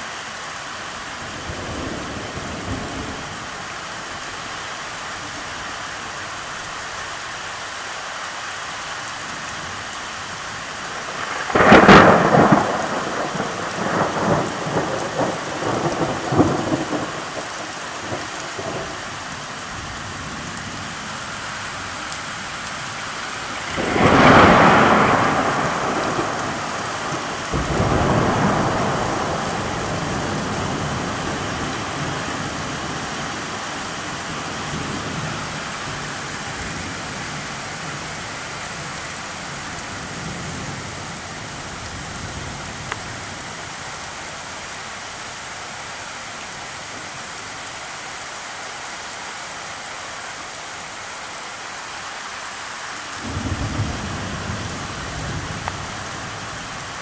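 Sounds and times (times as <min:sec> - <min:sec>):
heavy rain on flooded street: 0:00.0 - 0:57.0
thunder rumbling: 0:11.0 - 0:19.0, 0:23.4 - 0:38.0.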